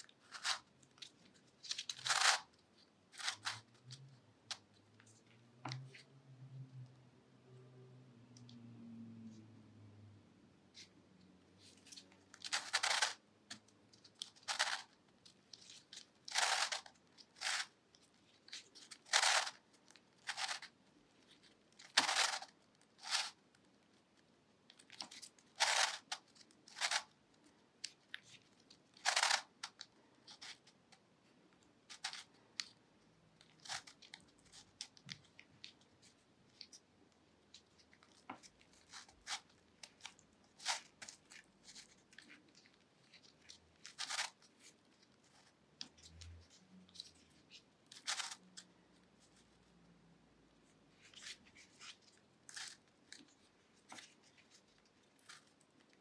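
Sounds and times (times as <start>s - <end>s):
plastic puzzle pieces scraping: 0.0s - 4.6s, 11.6s - 23.4s, 24.7s - 30.8s, 31.8s - 32.8s, 33.4s - 36.8s, 37.5s - 49.4s, 50.9s - 56.0s.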